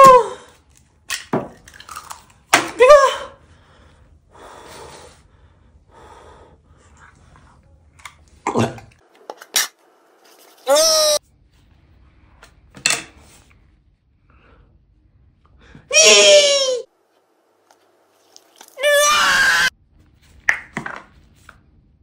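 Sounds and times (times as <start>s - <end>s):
man wailing: 10.7s - 11.2s, 15.9s - 16.8s.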